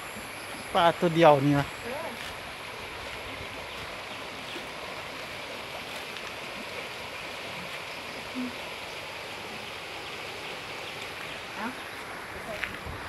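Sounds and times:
floodwater rushing: 0.0s - 13.0s.

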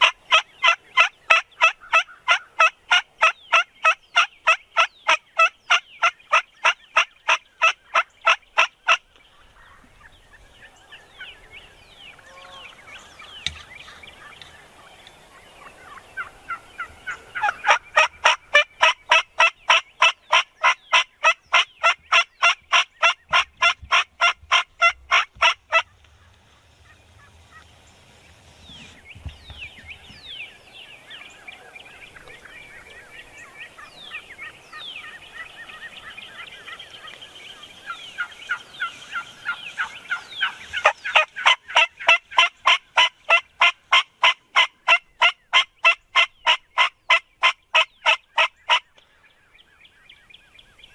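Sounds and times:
turkey yelping: 0.0s - 9.0s, 15.8s - 26.0s, 37.8s - 48.8s.

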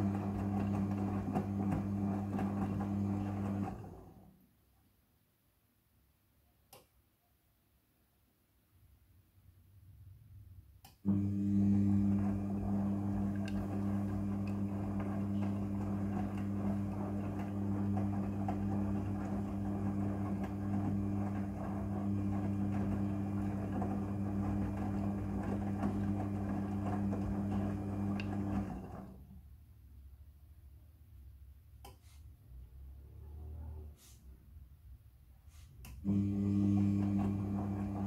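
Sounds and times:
washing machine motor humming: 0.0s - 4.3s, 11.1s - 29.4s, 35.9s - 38.0s.

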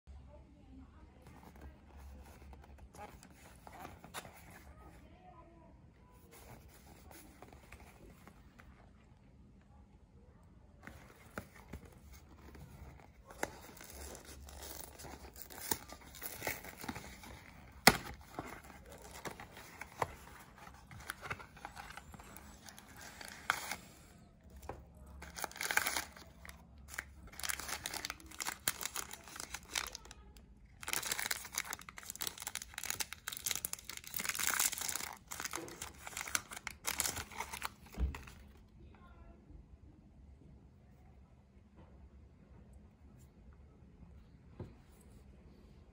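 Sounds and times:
cardboard box rustling: 10.8s - 30.0s, 30.8s - 38.4s
plastic wrapper crinkling and tearing: 10.8s - 38.5s.

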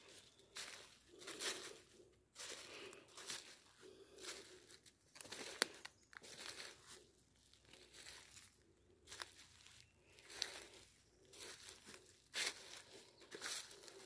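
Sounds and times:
footsteps on dry leaves: 0.0s - 14.0s.

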